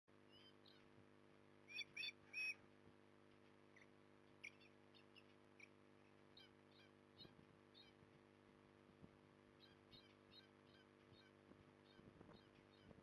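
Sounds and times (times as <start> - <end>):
young ospreys chirping: 1.7 - 2.6, 3.7 - 8.0, 9.6 - 13.0.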